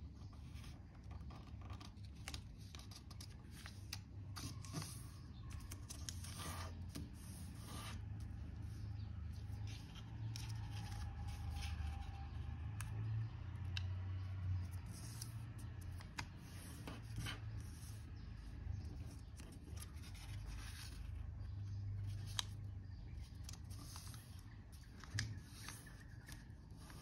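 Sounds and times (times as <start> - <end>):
paper crinkling and rustling: 9.4 - 12.8, 18.8 - 27.0.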